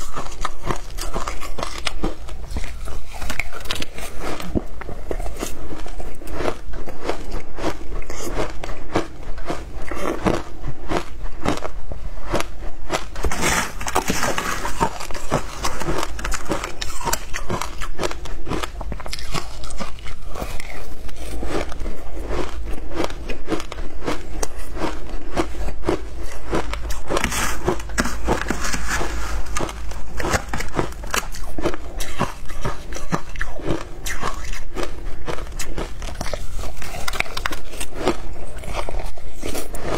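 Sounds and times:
ice being chewed and crunched: 0.0 - 39.9.

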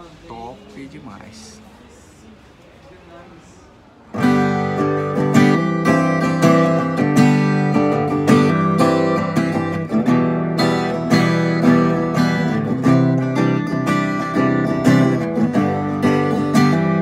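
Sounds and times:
acoustic guitar strummed: 4.1 - 17.0.

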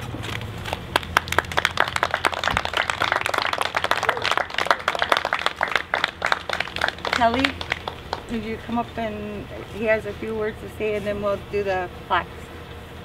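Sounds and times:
small group applauding: 0.6 - 8.5.

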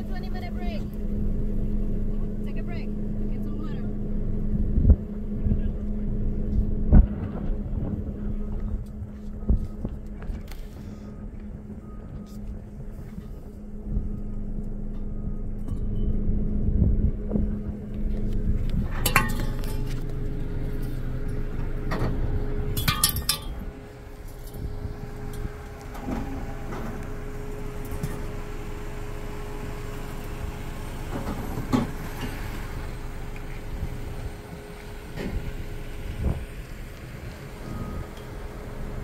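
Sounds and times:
vehicle engine idling: 0.0 - 39.0
metal clinks and clanks: 18.9 - 20.2, 22.8 - 23.7.

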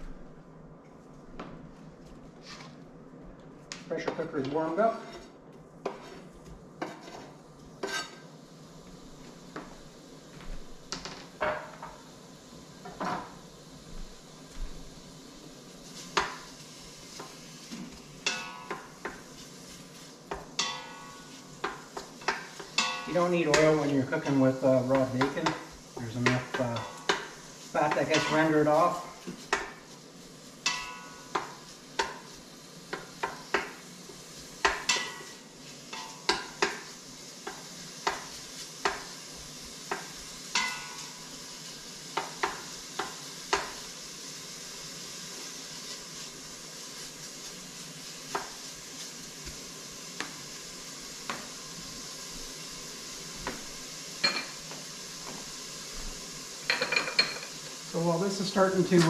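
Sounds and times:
bacon sizzling: 3.6 - 59.0
wooden spoon knocking and scraping pot: 27.9 - 28.5.

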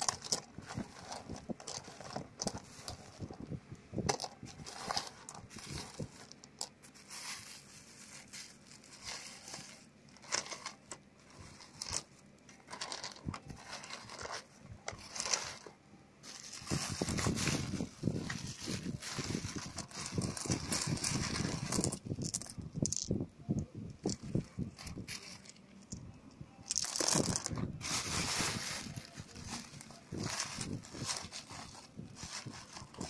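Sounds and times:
stones clicking together: 0.0 - 3.4, 19.8 - 23.2, 26.7 - 27.5
plastic bag crinkling: 0.0 - 3.5, 4.1 - 23.2, 26.6 - 33.0.

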